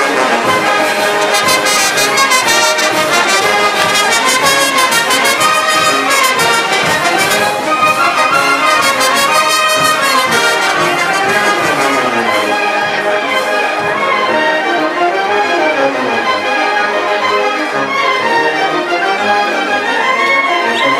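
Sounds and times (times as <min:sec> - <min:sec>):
brass band playing dance music: 0:00.0 - 0:20.9
bass drum beat: 0:01.4 - 0:13.0.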